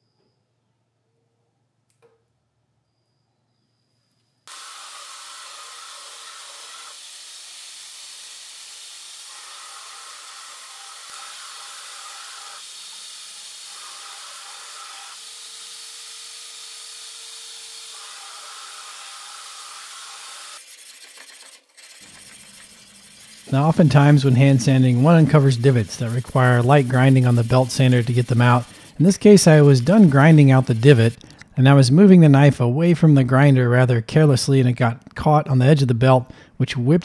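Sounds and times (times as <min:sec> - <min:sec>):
belt grinder grinding steel: 0:04.5 - 0:31.2.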